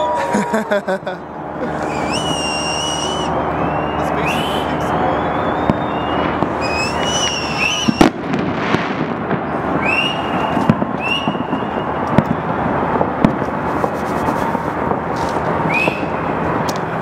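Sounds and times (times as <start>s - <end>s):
high firework whistles: 1.6s - 16.4s
distant firework bang: 5.5s - 14.0s
firework pops: 5.6s - 12.4s, 13.0s - 16.9s.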